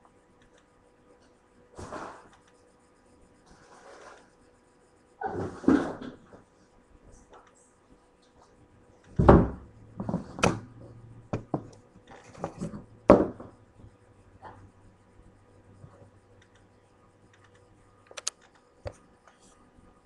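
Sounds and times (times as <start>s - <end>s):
thumps on wooden floor: 9.2s - 10.6s.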